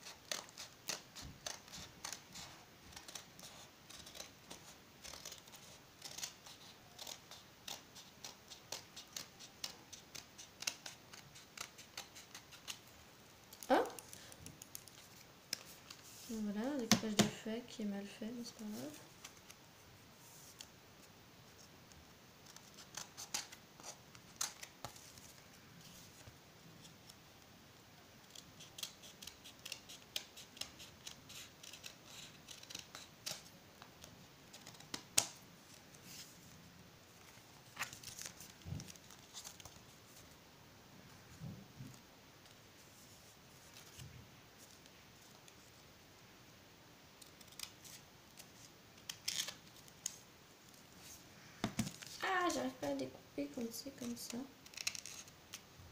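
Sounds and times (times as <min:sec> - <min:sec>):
scissors snipping paper: 0:00.0 - 0:12.9, 0:22.4 - 0:25.0, 0:28.2 - 0:33.5, 0:53.9 - 0:55.3.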